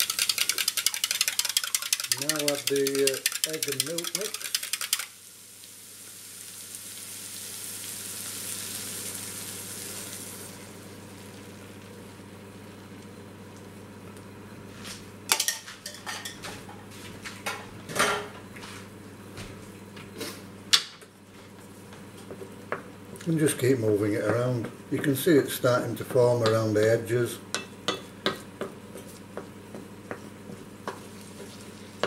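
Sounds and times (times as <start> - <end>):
liquid sizzling in a frying pan: 0.8 - 12.2, 30.9 - 32.0
kitchen utensils clattering: 1.6 - 5.0, 15.3 - 16.8.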